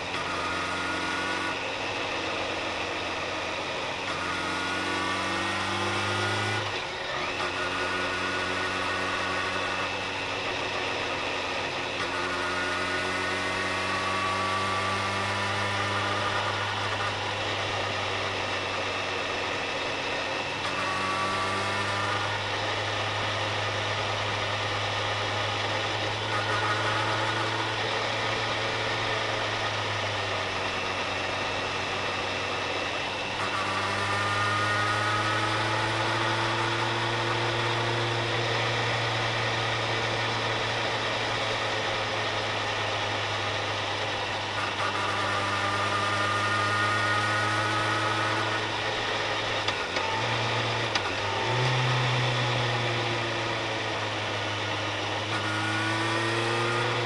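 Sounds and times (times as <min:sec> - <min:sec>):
car engine humming: 0:00.0 - 0:57.0.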